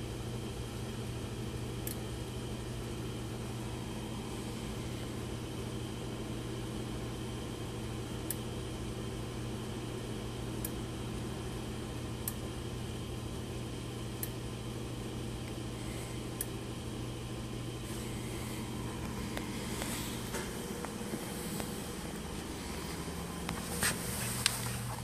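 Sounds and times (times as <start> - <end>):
steady low hum: 0.0 - 25.0
handling scuffs: 22.9 - 25.0.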